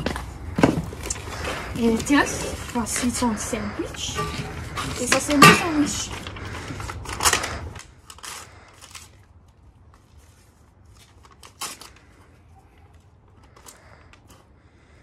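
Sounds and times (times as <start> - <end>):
low steady hum: 0.0 - 11.4
paper napkins rustling: 1.0 - 13.6.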